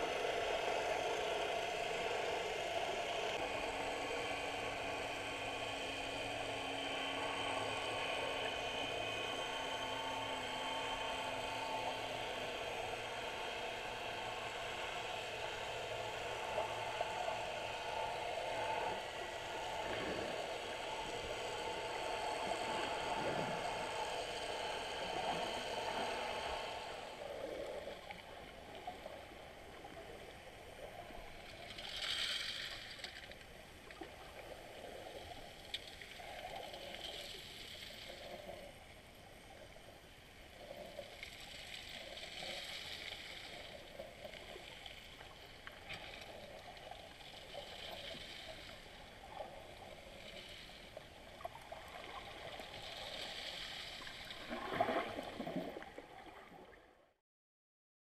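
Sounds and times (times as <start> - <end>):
muffled underwater hiss and gurgle: 0.0 - 57.1
underwater rush: 11.4 - 39.5, 40.5 - 56.8
faint ticks: 35.2 - 56.0.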